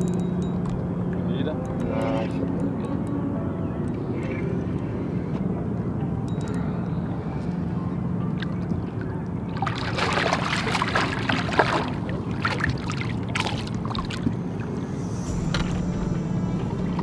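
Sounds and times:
steady low hum: 0.0 - 17.0
fish splashing at water surface: 9.6 - 14.2.

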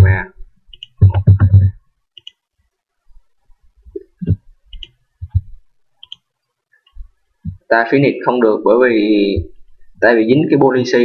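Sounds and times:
soft low thumps: 0.0 - 1.8, 3.8 - 4.6, 5.2 - 5.7, 7.0 - 7.7, 9.2 - 9.6
computer mouse clicking: 0.7 - 2.4, 4.2 - 7.6.

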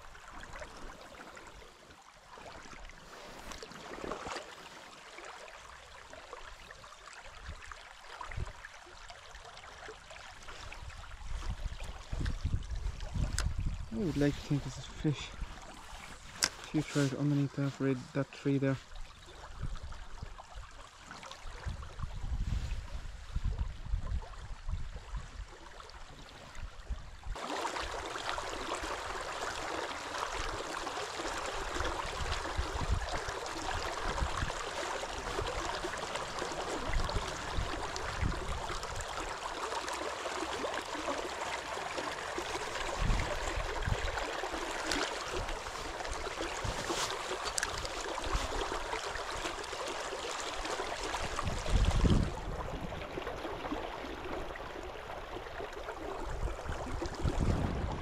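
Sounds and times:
river water rushing: 27.4 - 58.0.

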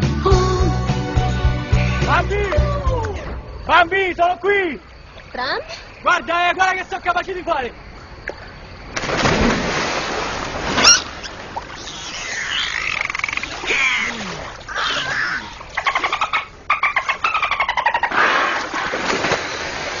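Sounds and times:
dolphin whistles: 10.8 - 11.1, 11.8 - 14.1
sharp rising squeak: 11.8 - 13.5.

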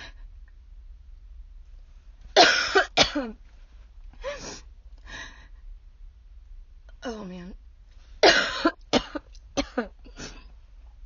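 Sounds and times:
woman coughing: 2.4 - 3.4, 8.2 - 10.5.

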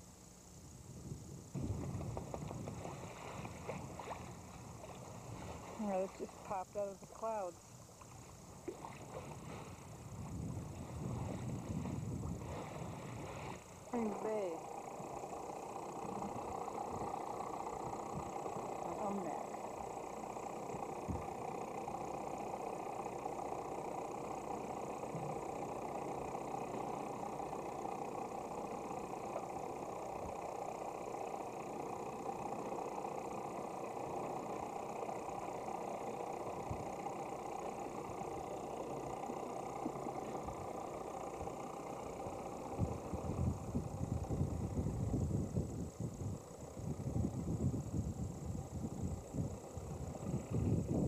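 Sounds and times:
boat engine droning: 0.0 - 51.0
wind buffeting microphone: 0.9 - 5.8, 8.8 - 13.6, 42.7 - 51.0.

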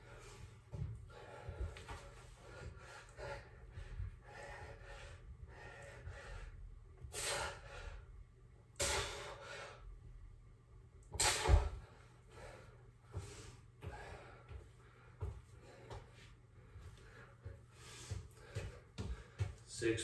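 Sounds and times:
footsteps: 0.1 - 3.0, 13.1 - 20.0
man exhaling forcefully: 8.8 - 9.7, 11.1 - 11.9.

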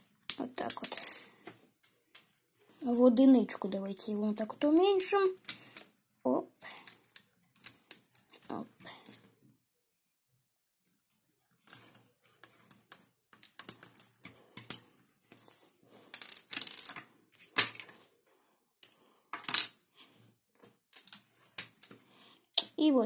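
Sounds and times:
plastic bricks clicking: 0.2 - 1.3, 11.6 - 14.8, 16.1 - 17.0, 20.6 - 22.0.

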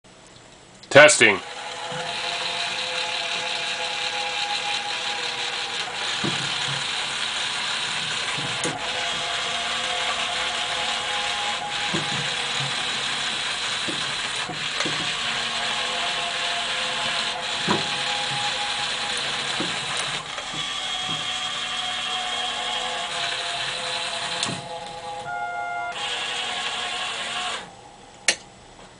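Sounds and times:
gear motor grinding whir: 1.2 - 27.8.

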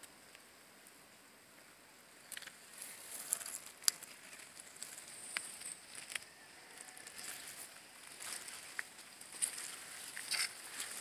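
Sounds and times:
footsteps crunching through dry grass: 2.7 - 11.0.

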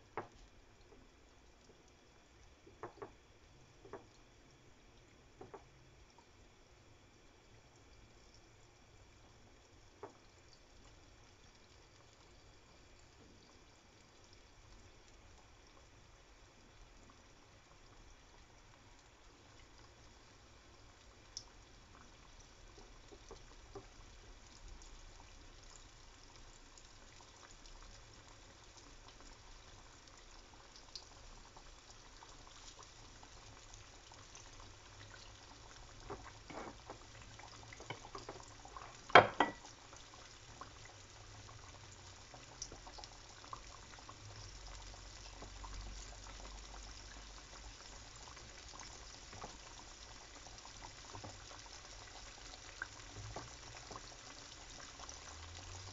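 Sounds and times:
chicken sizzling in oil: 16.8 - 55.9.

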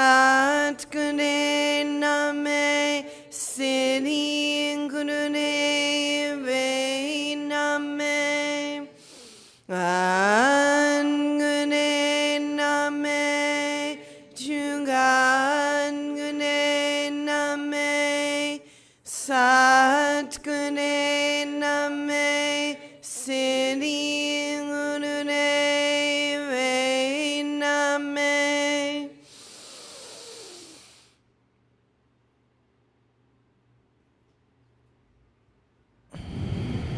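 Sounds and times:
woman chanting: 0.0 - 9.1, 9.7 - 29.2
breaths: 3.0 - 3.4, 8.9 - 9.7, 14.0 - 14.4, 18.6 - 19.1, 29.2 - 31.3, 36.1 - 36.9.

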